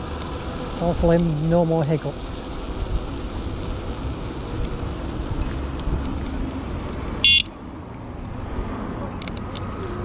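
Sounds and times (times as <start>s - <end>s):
rumble of wind and tyres: 0.0s - 10.0s
electronic bicycle horn beep: 7.2s - 7.5s.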